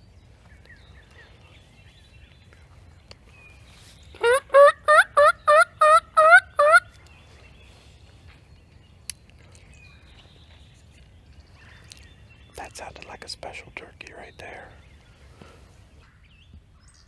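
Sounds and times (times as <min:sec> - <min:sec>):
turkey mouth call yelps: 0:04.2 - 0:06.9.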